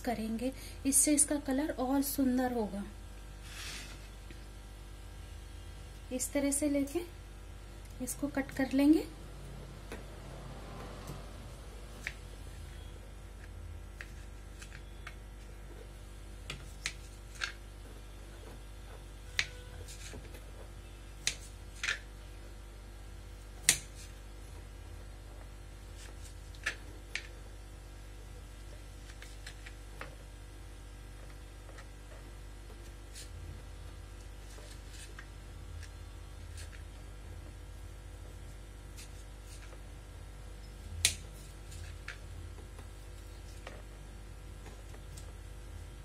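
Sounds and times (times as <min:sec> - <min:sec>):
faint steady hum: 0:00.0 - 0:46.0.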